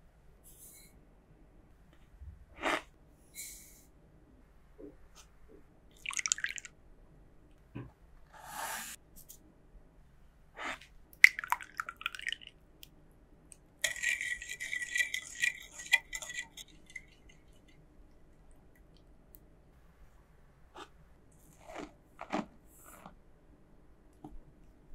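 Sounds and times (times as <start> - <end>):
liquid pouring into glass bowl: 6.0 - 6.7, 11.2 - 12.5, 13.8 - 17.8
whisk clinking against glass: 13.8 - 17.8.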